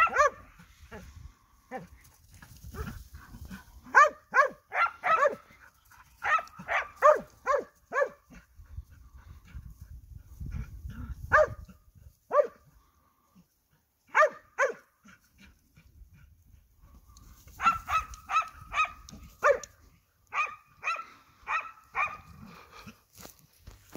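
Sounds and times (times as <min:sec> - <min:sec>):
hound barking: 0:00.0 - 0:01.0, 0:03.8 - 0:08.4, 0:11.3 - 0:11.7, 0:12.3 - 0:12.6, 0:14.1 - 0:14.9, 0:17.5 - 0:22.4.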